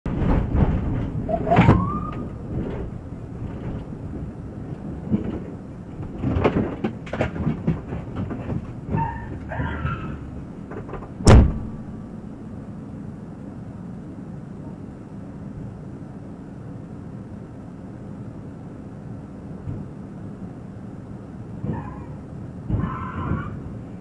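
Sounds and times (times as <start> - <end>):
car engines running: 0.1 - 24.0
rising squeal: 1.3 - 2.4, 8.9 - 10.4, 21.6 - 23.7
metal thuds: 10.7 - 12.1
loud sharp bang: 11.2 - 12.0.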